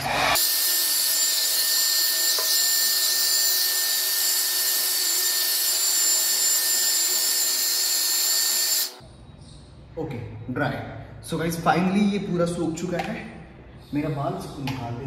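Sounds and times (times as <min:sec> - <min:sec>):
hair dryer blowing with whine: 0:00.0 - 0:00.4.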